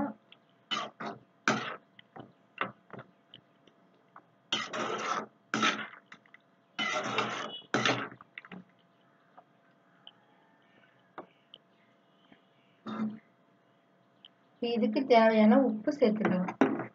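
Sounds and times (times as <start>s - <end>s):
metal ladle scraping a pan: 4.5s - 6.0s, 6.8s - 8.1s.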